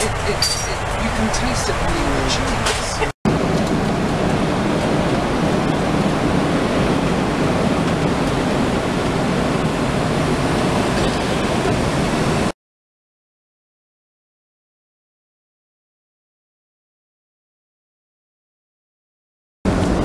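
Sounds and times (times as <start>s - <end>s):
airplane cabin noise: 0.0s - 12.5s, 19.7s - 20.0s.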